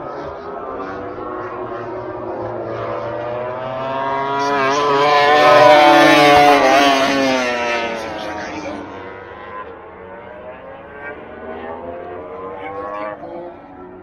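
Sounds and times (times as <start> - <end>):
racing motorcycle passing by: 0.0 - 14.0.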